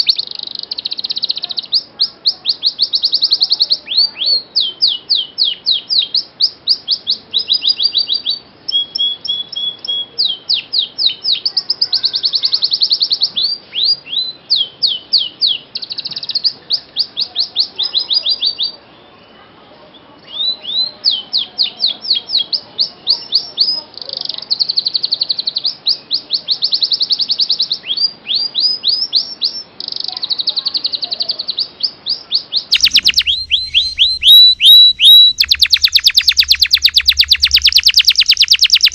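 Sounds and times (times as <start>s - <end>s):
canary singing: 0.0s - 11.6s, 27.8s - 38.9s.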